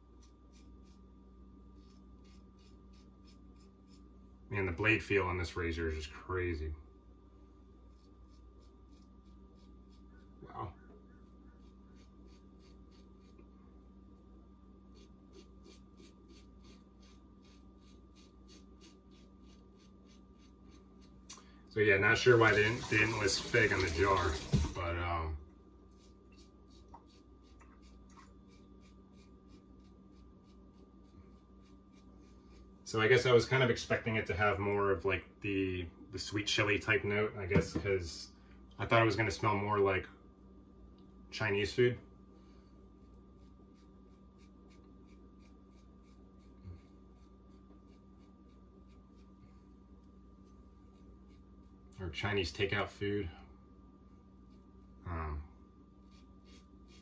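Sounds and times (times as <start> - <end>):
razor scratching through stubble: 0.0 - 1.1, 1.7 - 4.1, 7.8 - 10.4, 11.2 - 13.5, 14.9 - 21.3, 25.9 - 32.8, 43.1 - 49.4, 56.0 - 57.0.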